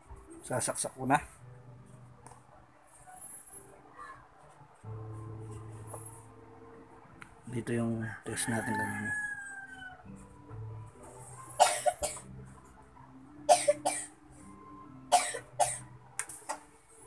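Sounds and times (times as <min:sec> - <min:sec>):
rooster crowing: 0:07.9 - 0:10.2.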